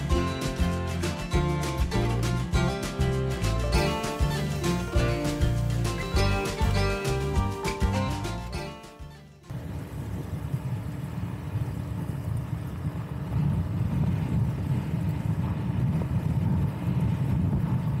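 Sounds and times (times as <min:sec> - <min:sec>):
wind rumbling on microphone: 0:09.5 - 0:18.0.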